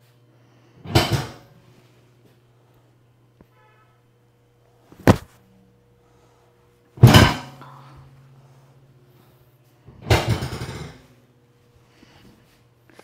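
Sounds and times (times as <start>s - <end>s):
steady low hum: 0.0s - 13.0s
thumps on padded table: 5.0s - 5.4s.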